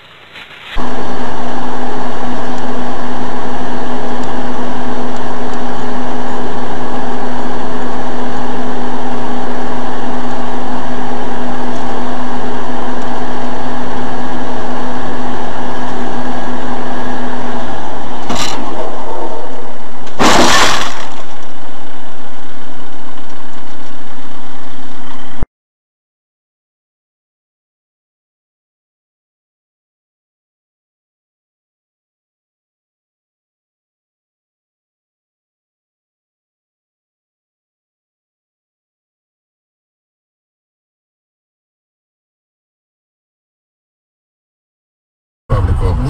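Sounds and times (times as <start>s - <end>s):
car driving drone: 0.0s - 25.4s, 45.5s - 46.0s
vehicle crash impact: 18.3s - 18.9s, 20.1s - 21.4s.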